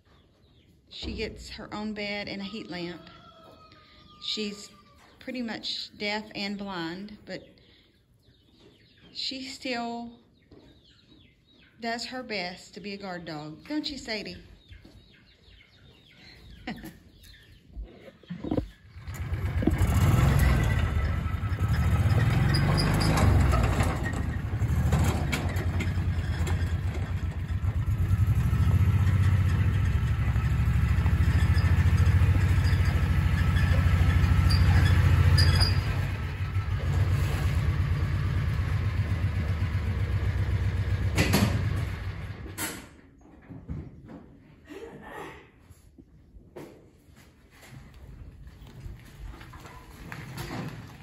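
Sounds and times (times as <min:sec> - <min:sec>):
utility vehicle engine running: 0:18.9 - 0:42.6.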